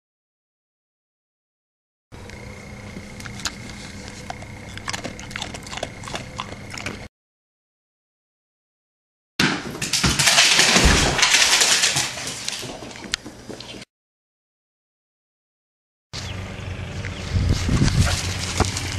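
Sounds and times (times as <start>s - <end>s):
faint steady hum: 2.2s - 7.1s
dog crunching treats: 2.3s - 7.1s.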